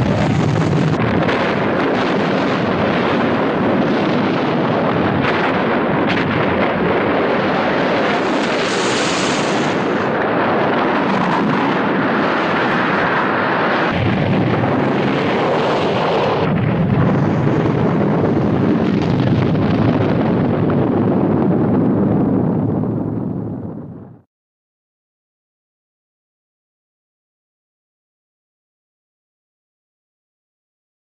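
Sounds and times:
volcanic eruption rushing blasts: 0:00.0 - 0:24.2.

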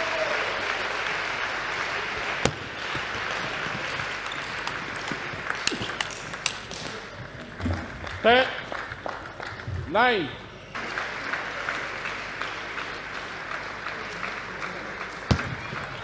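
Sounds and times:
crowd noise: 0:00.0 - 0:16.0
table tennis ball clicking: 0:04.3 - 0:07.0.

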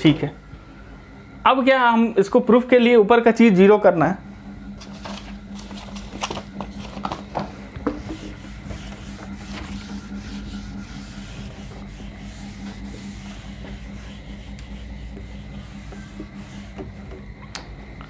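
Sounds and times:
steady low hum: 0:00.0 - 0:18.0
duster wiping a whiteboard: 0:04.8 - 0:17.4.

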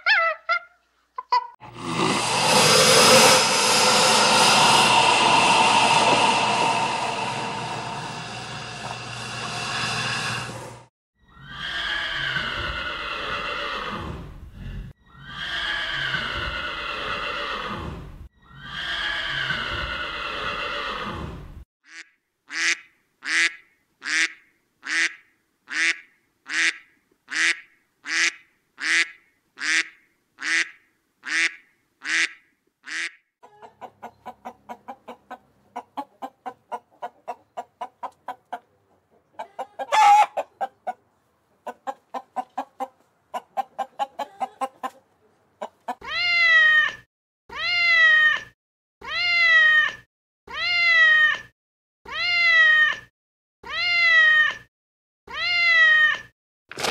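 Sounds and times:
fast run of animal pulses: 0:01.7 - 0:10.9
long falling animal calls: 0:02.2 - 0:10.6
loud animal cry: 0:15.1 - 0:21.2, 0:39.4 - 0:40.7.

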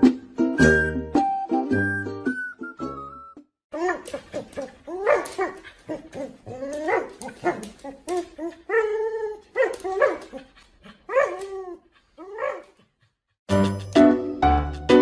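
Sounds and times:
husky vocalising: 0:03.8 - 0:13.1.

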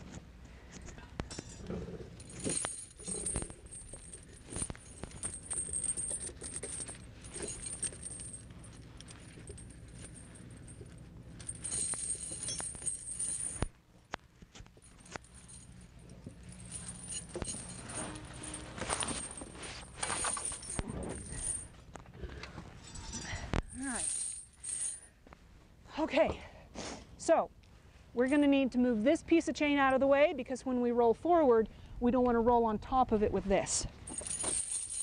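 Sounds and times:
steady low hum: 0:00.0 - 0:35.0
tire chains jangling: 0:01.3 - 0:13.7, 0:14.8 - 0:21.7, 0:22.8 - 0:25.1, 0:34.1 - 0:35.0.

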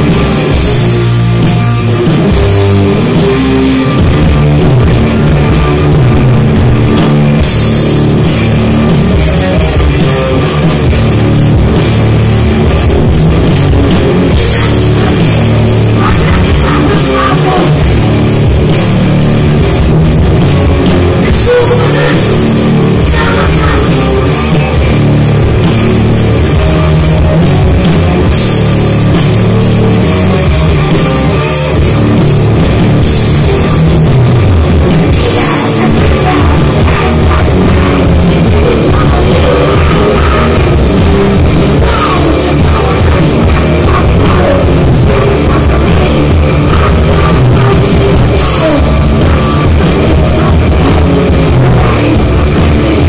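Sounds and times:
bass guitar: 0:00.0 - 0:53.0
distorted electric guitars: 0:00.0 - 0:53.0
drum kit: 0:00.0 - 0:53.0.

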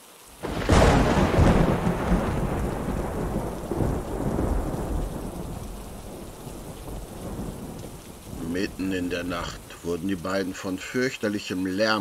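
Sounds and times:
rain hissing: 0:00.0 - 0:12.0
thunder rumbling: 0:00.4 - 0:10.0.

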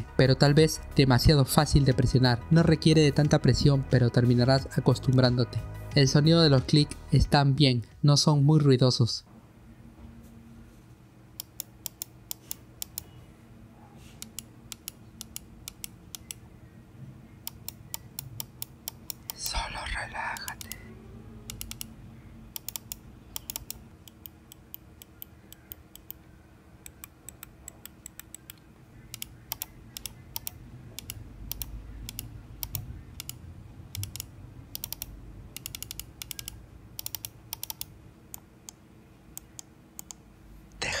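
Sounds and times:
mouse button clicking: 0:22.6 - 0:26.2, 0:26.8 - 0:38.8.

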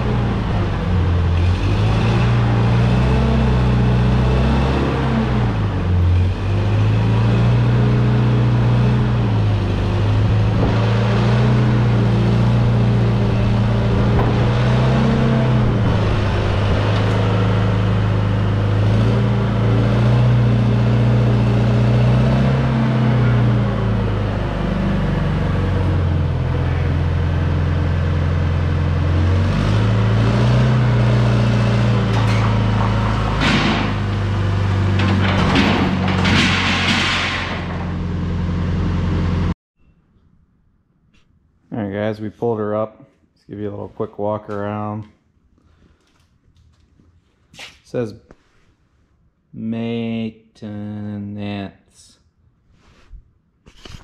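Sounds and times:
forklift engine running: 0:00.0 - 0:39.6.

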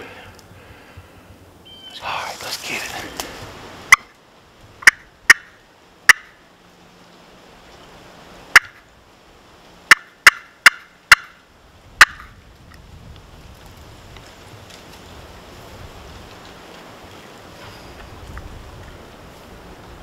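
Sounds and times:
wild turkey clucking: 0:04.8 - 0:06.4, 0:09.9 - 0:11.4.

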